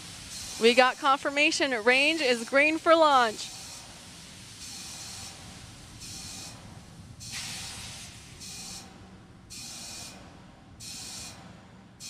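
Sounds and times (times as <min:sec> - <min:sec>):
rocket venting hiss bursts: 0:00.0 - 0:06.5, 0:07.2 - 0:08.8
low steady rumble: 0:05.4 - 0:09.6, 0:10.2 - 0:12.0.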